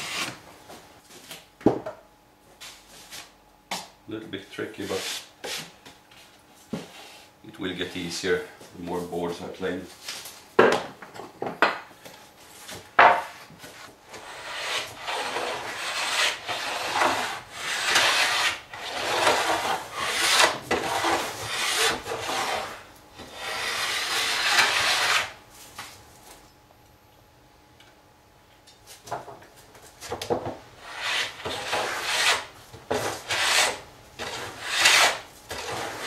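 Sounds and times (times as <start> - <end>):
hand plane cutting wood: 14.2 - 25.4, 30.8 - 36.0.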